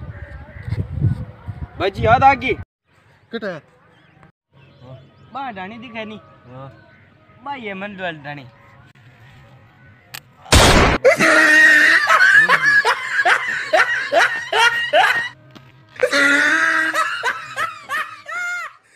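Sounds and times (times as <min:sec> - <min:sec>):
sharp loud burst: 0:10.5 - 0:11.0.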